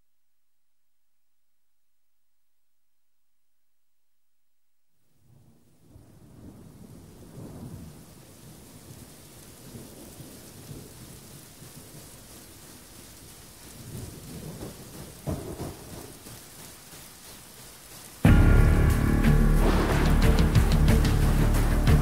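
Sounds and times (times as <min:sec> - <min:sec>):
steady rain: 0:05.0 - 0:22.0
rolling thunder: 0:05.3 - 0:12.3, 0:13.8 - 0:16.4, 0:18.2 - 0:22.0.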